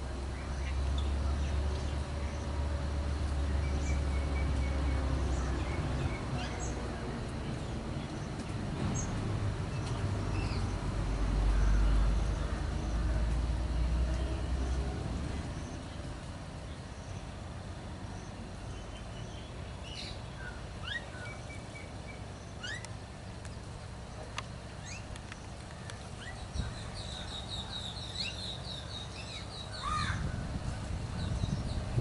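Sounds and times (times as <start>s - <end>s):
birds chirping and whistling: 3.5s - 6.8s, 9.7s - 10.8s, 18.7s - 22.9s, 24.8s - 30.4s, 31.0s - 32.0s.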